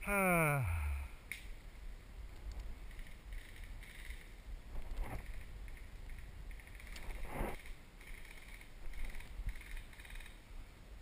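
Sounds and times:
wind rumble: 1.5s - 11.0s
microphone handling noise: 7.0s - 7.6s.

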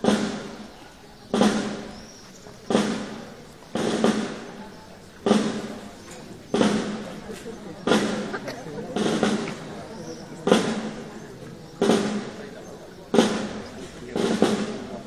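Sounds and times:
drum beaten slowly: 0.0s - 15.0s.

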